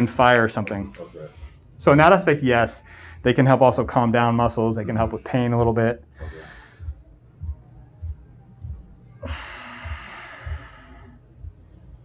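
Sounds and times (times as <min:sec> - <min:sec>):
man breathing heavily: 0:01.0 - 0:01.8, 0:02.8 - 0:03.2, 0:06.1 - 0:07.6, 0:09.2 - 0:12.0
faint low thumps: 0:04.4 - 0:11.9.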